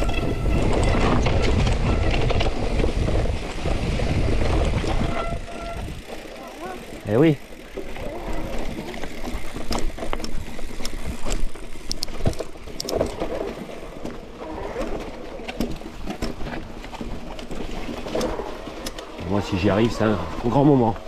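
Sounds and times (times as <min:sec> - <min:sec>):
bike rattling and clicking: 0:00.0 - 0:21.0
bike tyres on rough trail: 0:00.0 - 0:21.0.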